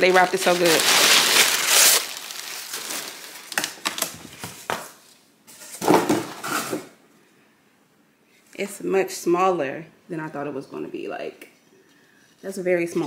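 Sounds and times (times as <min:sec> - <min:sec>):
packing paper crinkling: 0:00.0 - 0:05.0.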